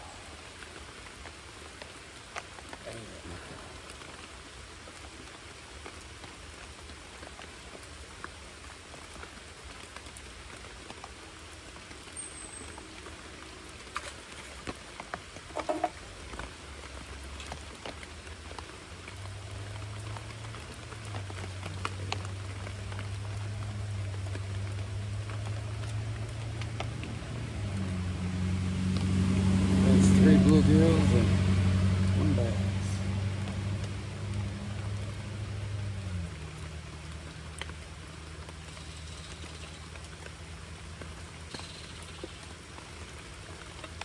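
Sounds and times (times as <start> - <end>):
low engine hum: 0.0 - 44.0
rain pattering on water: 0.0 - 44.0
handling clicks and knocks: 15.5 - 16.0.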